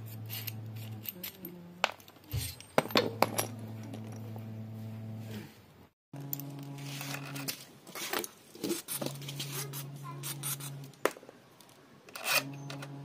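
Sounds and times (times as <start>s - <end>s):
steady low hum: 0.0s - 7.9s, 8.7s - 11.0s, 12.2s - 13.0s.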